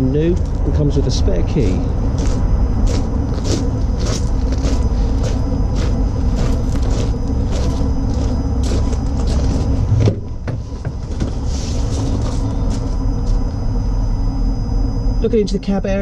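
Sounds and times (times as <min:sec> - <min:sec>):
wind rumbling on microphone: 0:00.0 - 0:15.1
steady hum: 0:00.0 - 0:16.0
footsteps crunching on gravel: 0:01.6 - 0:10.0, 0:10.6 - 0:13.5.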